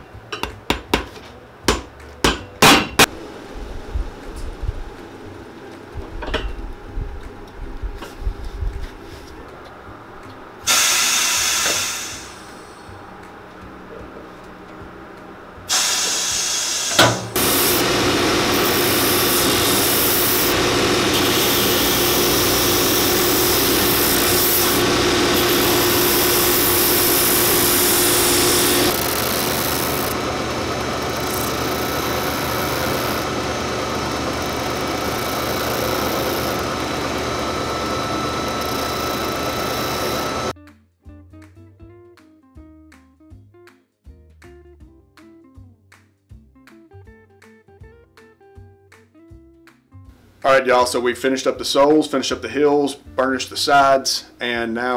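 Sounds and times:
abrasive wheels sanding leather: 15.7s - 40.5s.

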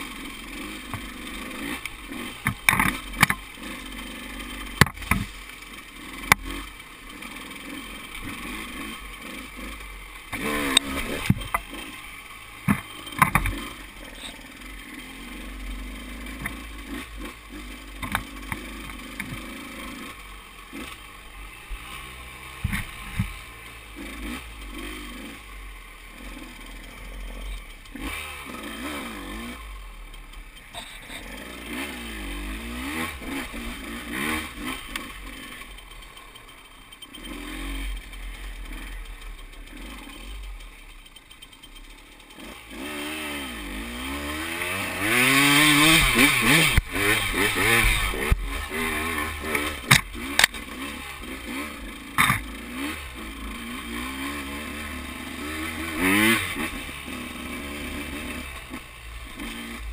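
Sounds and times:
motorcycle engine revving: 0.0s - 59.9s
clattering knocks from motorcycle: 4.8s - 5.3s, 12.6s - 13.6s, 49.8s - 50.6s, 52.2s - 52.5s.

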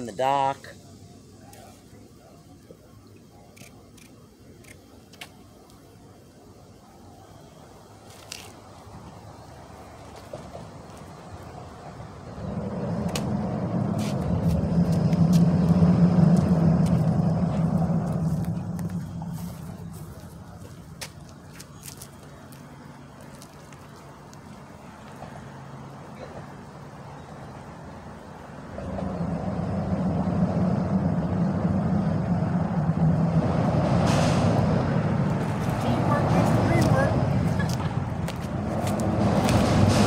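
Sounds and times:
vehicle engine driving past: 11.5s - 21.0s, 28.2s - 40.0s.

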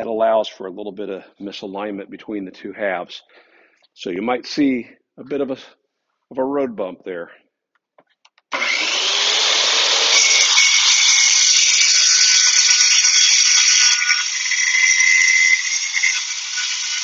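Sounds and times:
saw blade cutting hardboard: 8.5s - 17.0s
track saw motor whining: 8.5s - 17.0s.

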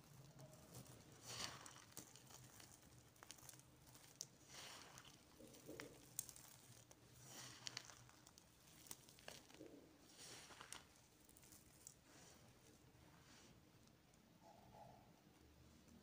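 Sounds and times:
hand rustling clay powder: 0.0s - 14.1s
clicks of clay pieces: 0.2s - 12.0s.

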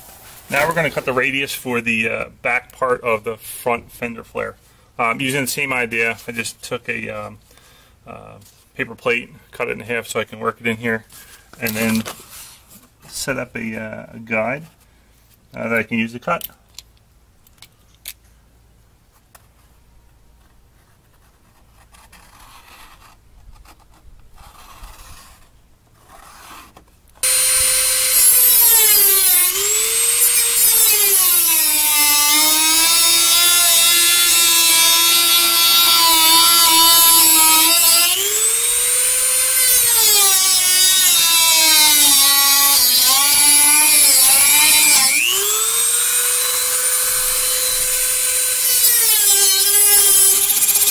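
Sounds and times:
rotary tool cutting plastic: 21.8s - 50.9s.

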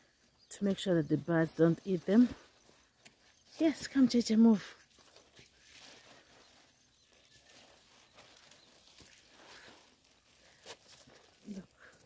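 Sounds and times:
footsteps on muddy dirt: 0.6s - 12.0s.

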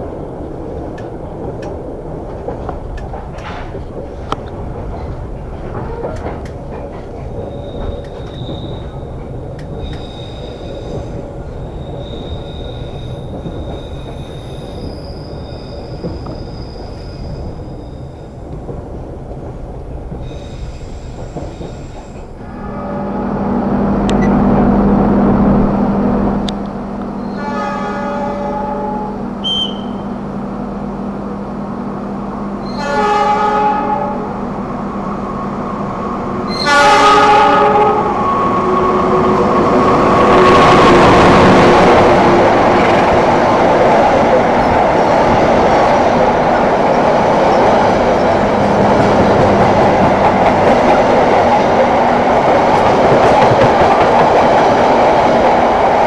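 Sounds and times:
train carriage rumbling on rails: 0.0s - 56.0s
locomotive horn blasts: 22.4s - 23.4s, 27.2s - 30.1s, 32.6s - 34.3s, 36.5s - 38.2s.

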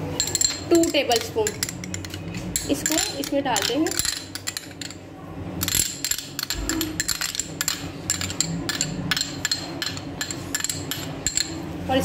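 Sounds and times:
metal spoon clinking on glass bowl: 0.2s - 5.0s.

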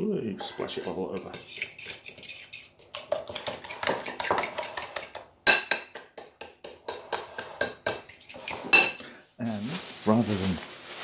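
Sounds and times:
fork whisking in ceramic bowl: 0.4s - 5.2s, 6.6s - 8.8s
fork clinking on bowl: 0.5s - 9.0s.

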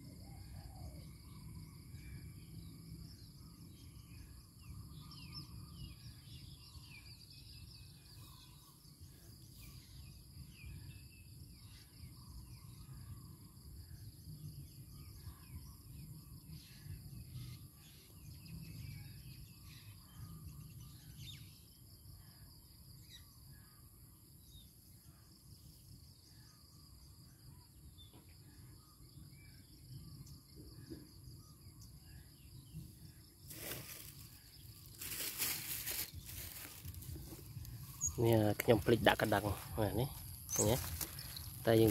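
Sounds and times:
insects droning: 0.0s - 41.9s
rustling: 33.5s - 38.1s.

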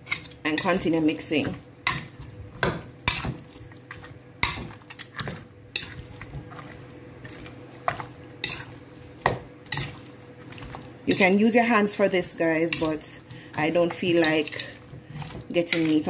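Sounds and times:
faint steady hum: 0.0s - 16.0s
metal utensil scraping plastic bowl: 13.8s - 16.0s.

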